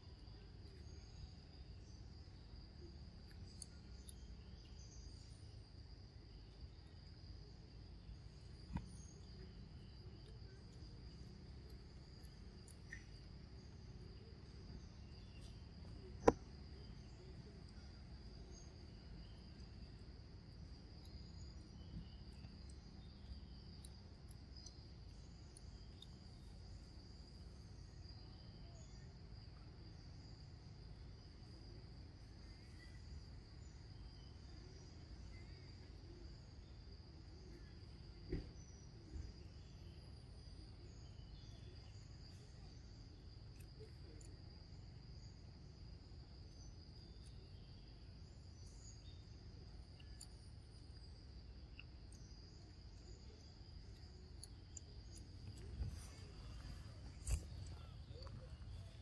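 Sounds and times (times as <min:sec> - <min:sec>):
small knocks: 0:16.2 - 0:16.4
sharp click: 0:57.0 - 0:58.7.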